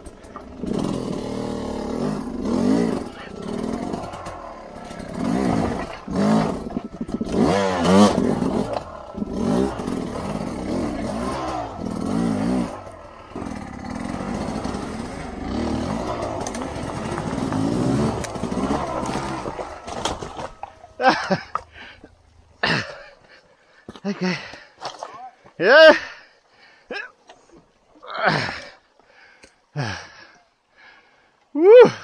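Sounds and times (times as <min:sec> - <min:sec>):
two-stroke engine revving: 0:00.0 - 0:22.0.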